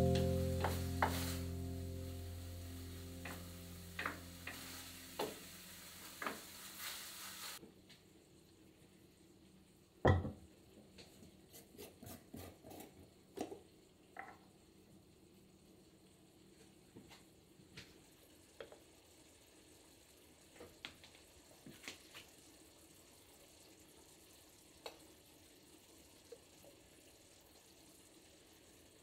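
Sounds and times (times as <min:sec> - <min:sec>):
food sizzling in a frying pan: 0:00.0 - 0:07.6, 0:12.6 - 0:29.0
wooden spatula tapping pan: 0:00.1 - 0:01.4, 0:03.2 - 0:05.5
glass knocking on wooden table: 0:10.1 - 0:10.4.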